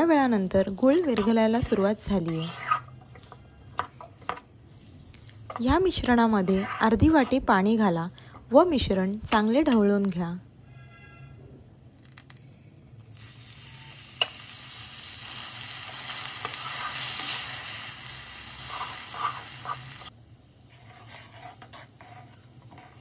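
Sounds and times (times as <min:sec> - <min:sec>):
metal spatula scraping pan: 0:00.8 - 0:03.4, 0:05.5 - 0:07.5, 0:20.7 - 0:23.0
water sizzling in hot pan: 0:13.1 - 0:20.1.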